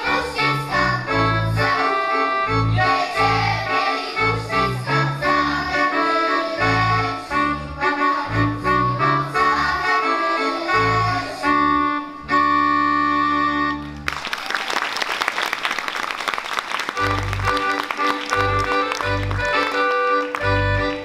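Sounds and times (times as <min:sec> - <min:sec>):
folk dance music: 0:00.0 - 0:21.0
audience applause: 0:13.9 - 0:21.0.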